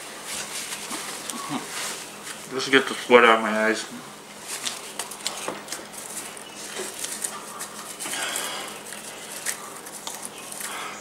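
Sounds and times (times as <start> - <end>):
popcorn chewing: 0.3 - 2.5, 4.4 - 11.0
breathy hiss: 8.0 - 9.2, 10.5 - 11.0.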